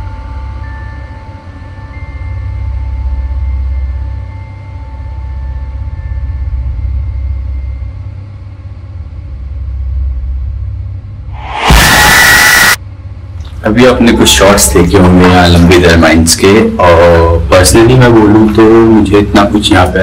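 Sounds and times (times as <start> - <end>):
faint steady tones: 0.0 - 11.0
loud burst of hiss: 11.4 - 12.8.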